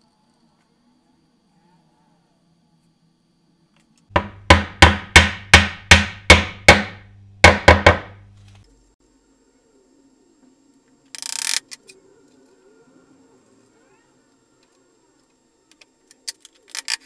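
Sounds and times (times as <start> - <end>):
hammer knocking wood: 4.2 - 8.3.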